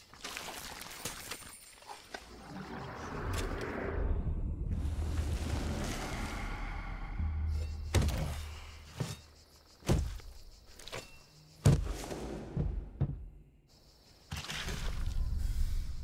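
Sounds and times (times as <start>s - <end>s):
low rumble: 2.5s - 8.0s
heavy blows thunking: 11.6s - 13.4s.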